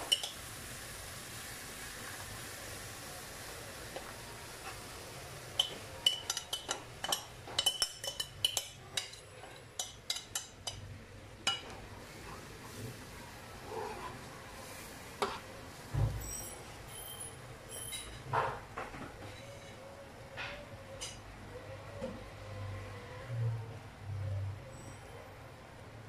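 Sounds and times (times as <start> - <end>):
faint sizzle: 0.0 - 20.0.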